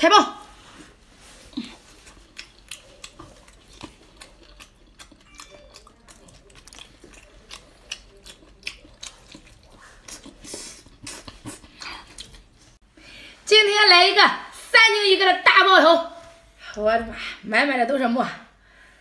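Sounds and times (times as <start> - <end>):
chewing with mouth smacks: 0.8 - 12.8.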